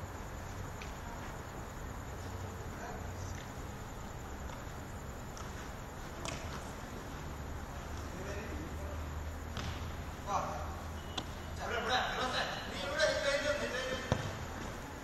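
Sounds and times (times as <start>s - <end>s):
sports hall room hum: 0.0s - 15.0s
football being kicked: 9.5s - 9.9s, 14.0s - 14.7s.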